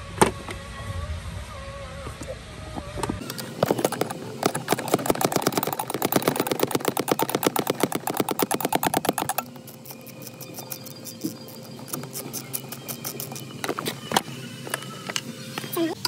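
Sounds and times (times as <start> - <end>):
ratchet wrench clicking rapidly: 3.3 - 13.5.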